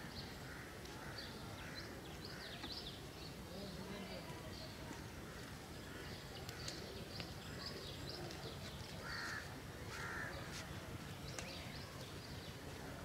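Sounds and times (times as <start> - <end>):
small birds chirping: 0.0 - 13.0
crow cawing: 9.0 - 10.4.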